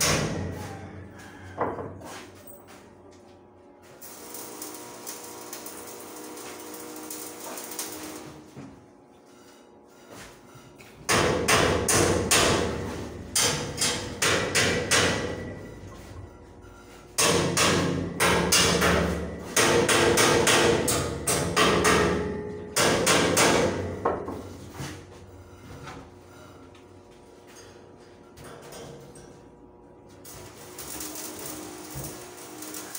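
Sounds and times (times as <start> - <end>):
hammer striking steel: 0.0 - 0.8, 11.1 - 15.7, 17.2 - 24.4.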